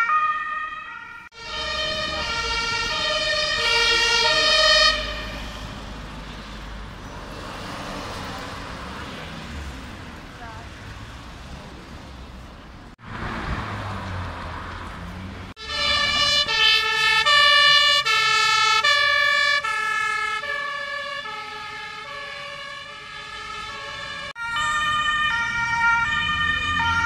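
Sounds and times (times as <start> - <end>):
two-tone emergency siren: 0.0 - 6.2, 15.6 - 27.0
street traffic noise: 0.0 - 27.0.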